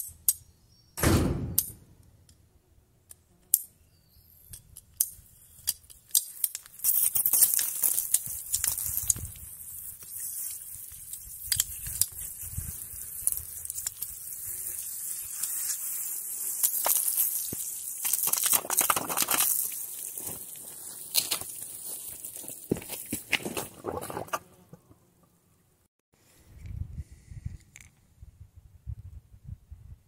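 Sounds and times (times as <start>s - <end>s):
knocks of pipe coupling: 1.0s - 1.8s.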